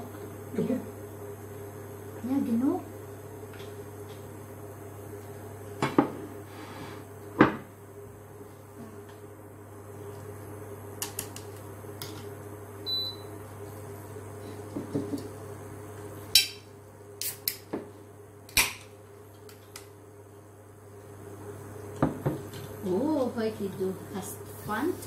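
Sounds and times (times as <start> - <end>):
steady low hum: 0.0 - 25.0.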